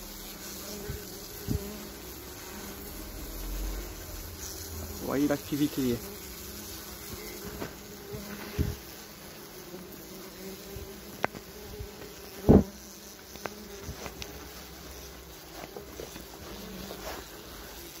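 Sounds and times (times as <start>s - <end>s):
wasps buzzing: 0.0s - 18.0s
thump: 7.5s - 8.8s, 11.3s - 12.8s.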